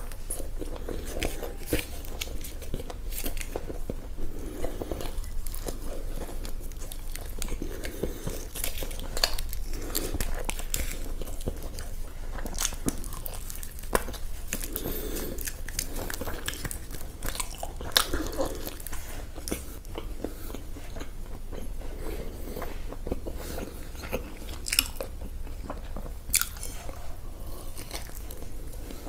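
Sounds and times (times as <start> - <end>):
person chewing crunchy food: 0.0 - 29.0.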